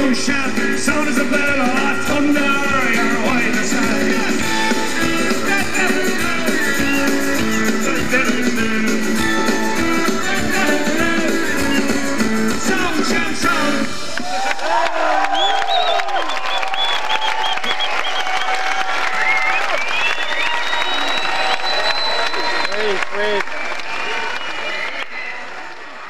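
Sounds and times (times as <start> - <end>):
acoustic guitar: 0.0 - 14.2
keyboards: 0.0 - 14.5
electric guitar: 0.0 - 14.6
drums: 0.0 - 26.0.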